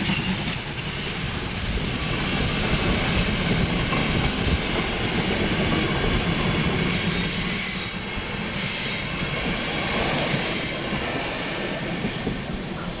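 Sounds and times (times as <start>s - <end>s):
train coaches rumbling over rails: 0.0s - 13.0s
wheel squeals: 6.9s - 9.2s, 10.4s - 11.2s.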